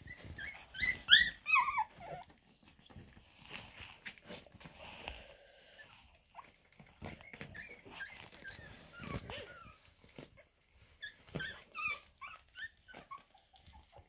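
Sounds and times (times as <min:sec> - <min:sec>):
puppies squeaking and whimpering: 0:00.0 - 0:02.9, 0:05.7 - 0:14.0
soft bumps of puppies jostling: 0:00.0 - 0:05.0, 0:05.8 - 0:14.0.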